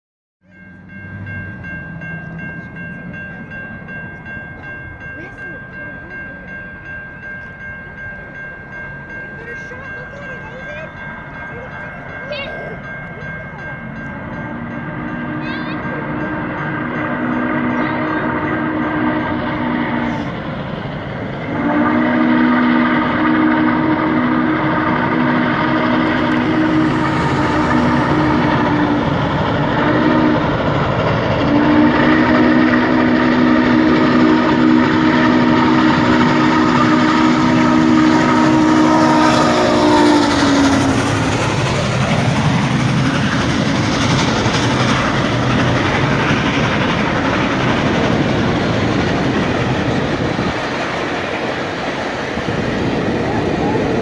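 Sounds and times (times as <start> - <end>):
steam locomotive chime whistle: 0.4 - 20.7, 21.3 - 51.6
train rumbling past: 0.4 - 54.0.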